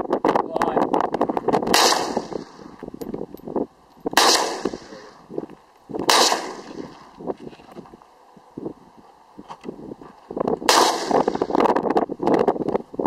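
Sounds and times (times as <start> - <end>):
rifle shots echoing: 1.7 - 2.7, 4.2 - 5.2, 6.0 - 7.1, 10.7 - 11.5.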